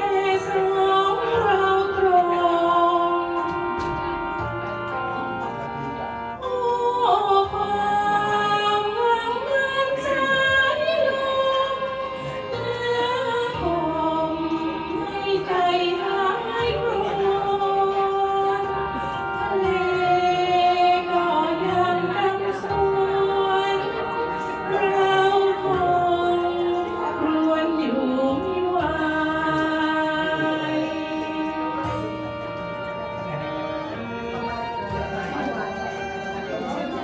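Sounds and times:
recorded backing track: 0:00.0 - 0:16.8, 0:18.0 - 0:37.0
person singing through microphone: 0:00.0 - 0:37.0.

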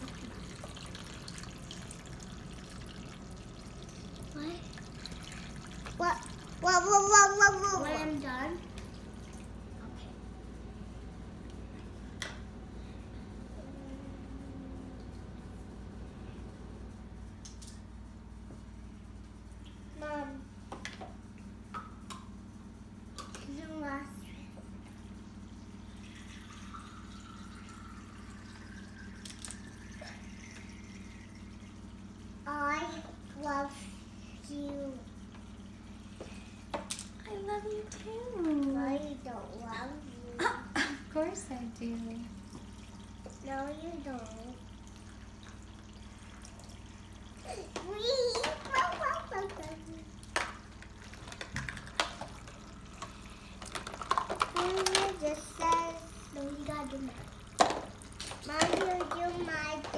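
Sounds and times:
water trickling into plastic cup: 0:00.0 - 0:07.9, 0:25.9 - 0:31.9, 0:42.3 - 0:47.5, 0:48.7 - 0:59.4
small water pump hum: 0:00.0 - 0:59.9
plastic dishes clacking: 0:53.6 - 0:55.2, 0:57.6 - 0:59.9.

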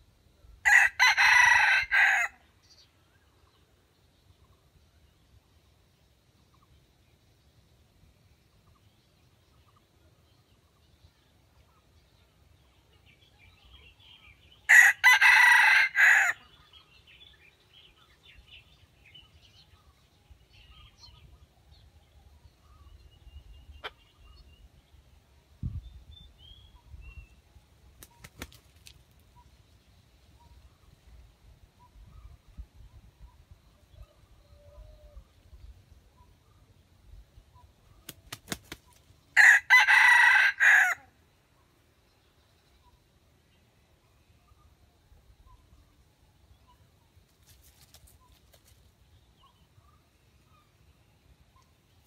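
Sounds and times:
rooster crowing: 0:00.6 - 0:02.4, 0:14.7 - 0:16.4, 0:39.4 - 0:41.1.

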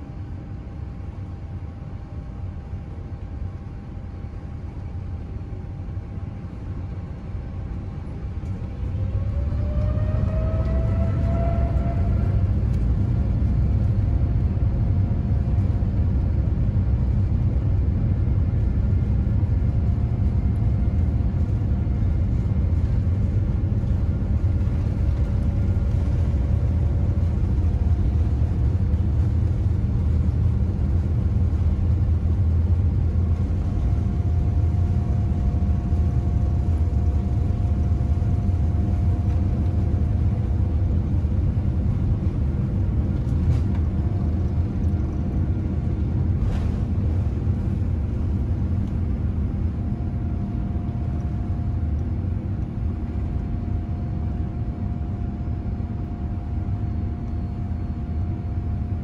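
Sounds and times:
aircraft cabin rumble while taxiing: 0:00.0 - 0:59.0.

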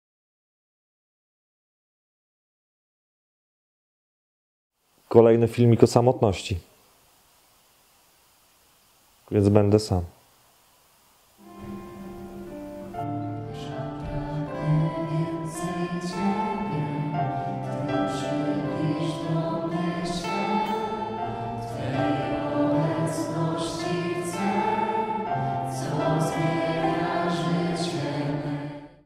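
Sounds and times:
choir singing held chords: 0:11.4 - 0:29.0.

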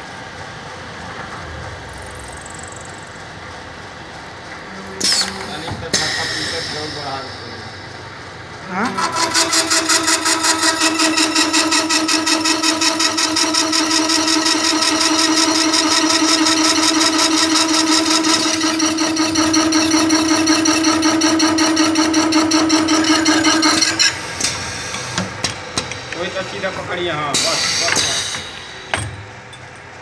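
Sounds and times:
cutter and drill machine humming: 0:08.8 - 0:26.3.

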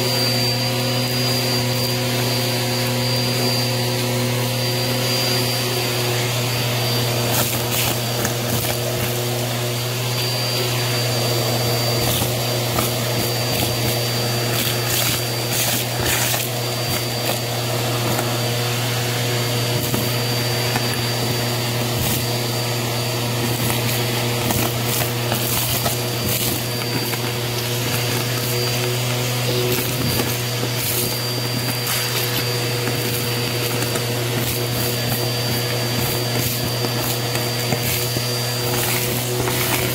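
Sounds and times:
vacuum cleaner running: 0:00.0 - 0:39.9
debris crackling up nozzle: 0:23.2 - 0:39.9.

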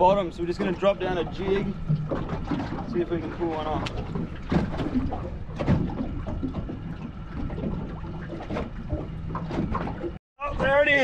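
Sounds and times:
water lapping against boat hull: 0:00.0 - 0:11.0.

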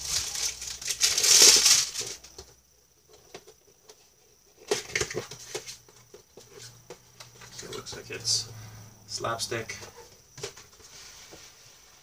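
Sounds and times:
cardboard packaging rustling: 0:00.0 - 0:02.4.

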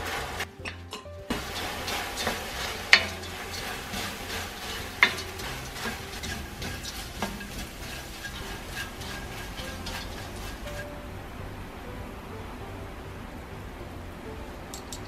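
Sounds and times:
wooden spatula stirring in wok: 0:00.0 - 0:11.2
light sizzle: 0:00.0 - 0:15.0.

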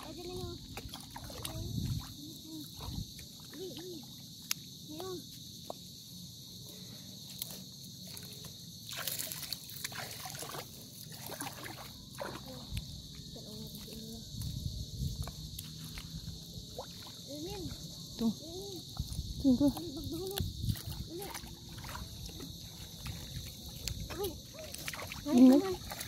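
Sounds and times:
footsteps splashing through water: 0:00.0 - 0:03.8, 0:08.9 - 0:12.9, 0:15.1 - 0:17.6, 0:19.7 - 0:26.0
insects chirring: 0:00.0 - 0:26.0.

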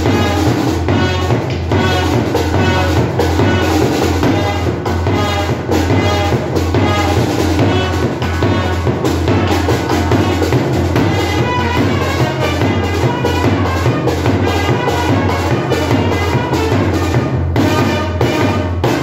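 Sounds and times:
side drum beaten with sticks: 0:00.0 - 0:19.0
trumpet: 0:00.0 - 0:19.0.

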